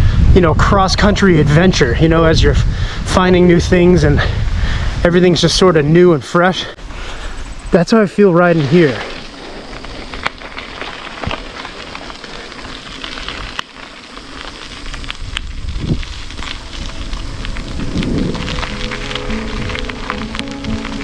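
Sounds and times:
wind rushing: 0.0 - 5.6, 14.8 - 21.0
bicycle crackling ticks: 6.9 - 21.0
soft music with held notes: 17.3 - 21.0.

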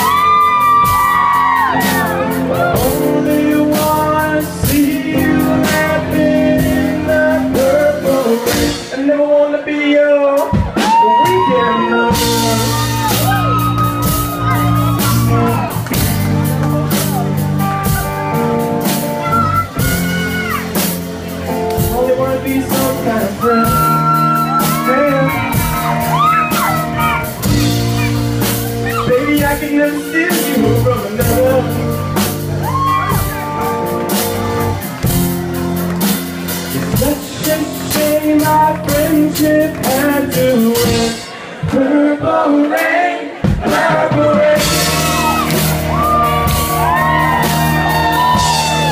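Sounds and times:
live band playing: 0.0 - 41.8, 43.2 - 48.9
man singing: 1.7 - 13.6, 21.8 - 27.6, 28.8 - 32.2, 36.8 - 45.4
drum hits: 12.1 - 19.2, 43.4 - 48.9.

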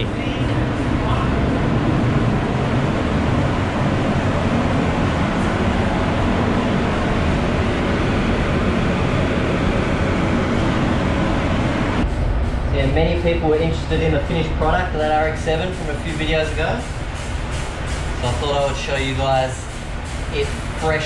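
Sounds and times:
ventilation fans rushing air: 0.0 - 21.0.

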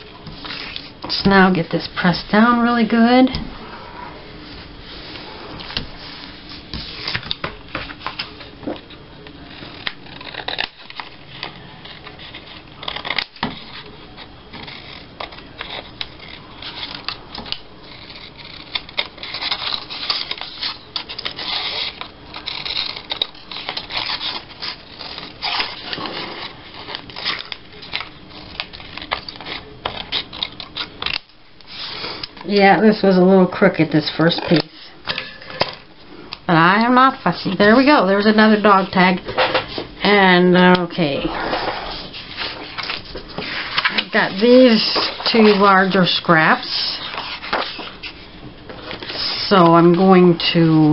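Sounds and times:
paper rustling and crackling: 5.0 - 32.5, 41.5 - 50.0
scissors snipping paper: 9.6 - 31.3.

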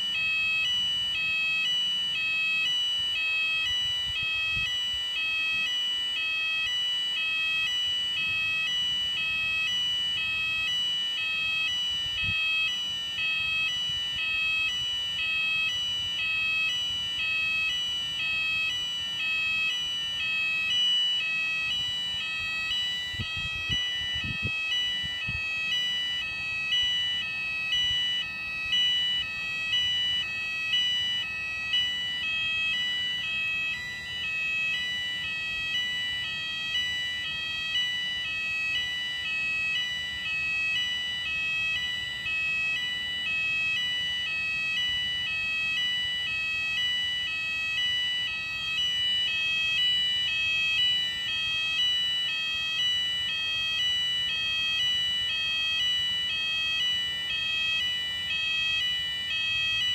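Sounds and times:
fire alarm electronic tones: 0.0 - 59.9.

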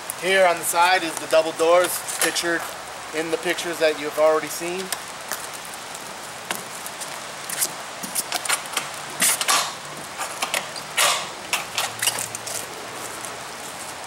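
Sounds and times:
rain hissing: 0.0 - 14.0
trailer door creaking and clunking: 8.4 - 12.4.

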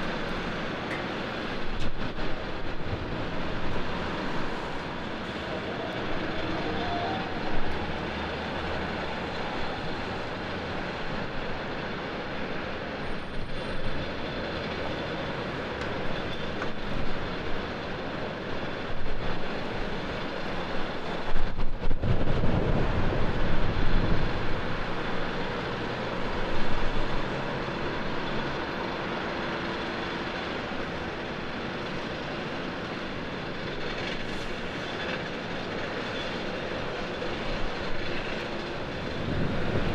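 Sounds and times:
airport apron roar: 0.0 - 39.9
wind buffeting microphone: 18.8 - 28.2, 37.2 - 39.9.

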